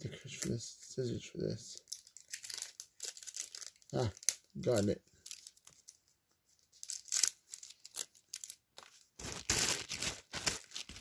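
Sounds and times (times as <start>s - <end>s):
packaging wrapper crinkling and tearing: 1.8s - 6.0s, 6.7s - 11.0s.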